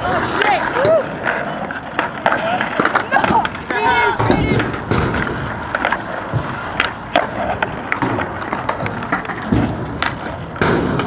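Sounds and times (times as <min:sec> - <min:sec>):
skateboard clacking on ground: 0:00.0 - 0:11.0
skateboard wheels rolling on concrete: 0:00.0 - 0:11.0.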